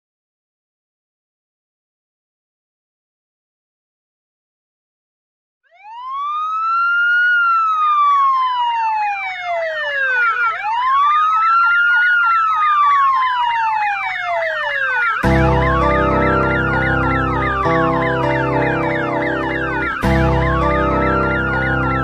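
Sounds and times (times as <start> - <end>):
ambulance siren wailing: 5.7 - 22.0
fast sweeping siren tone: 5.7 - 22.0.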